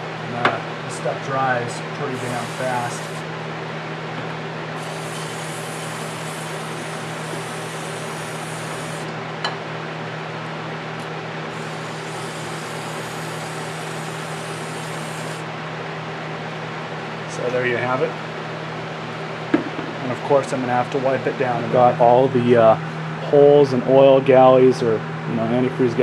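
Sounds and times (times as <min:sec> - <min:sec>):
steady low hum: 0:00.0 - 0:26.0
aerosol spray hissing: 0:02.2 - 0:03.2, 0:04.8 - 0:09.1, 0:11.6 - 0:15.4.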